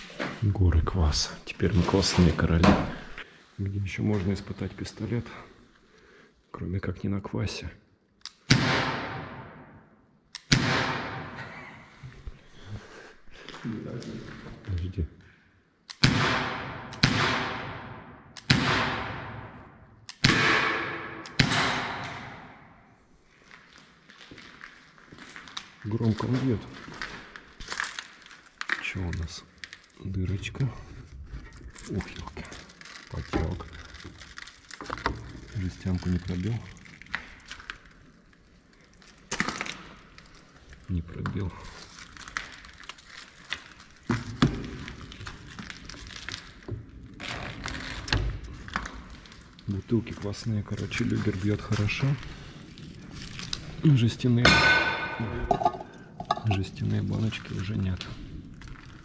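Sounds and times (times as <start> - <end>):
pistol shots with echo: 10.5 - 11.4, 16.0 - 19.5, 20.2 - 22.6
plastic bottle handled: 31.3 - 38.0.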